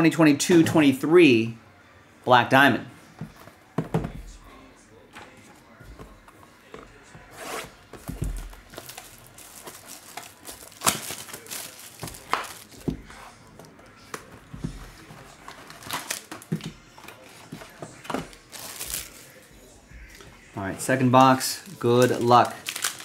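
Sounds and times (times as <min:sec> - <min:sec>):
foil packs handled: 0:07.6 - 0:13.2, 0:14.0 - 0:19.5, 0:20.6 - 0:23.0
plastic wrap crinkling and tearing: 0:08.1 - 0:13.0, 0:15.4 - 0:19.5, 0:21.2 - 0:23.0.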